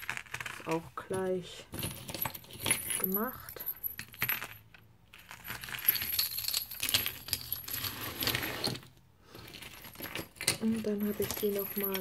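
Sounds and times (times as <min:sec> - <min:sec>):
keychains jingling and clinking: 0:09.6 - 0:12.0.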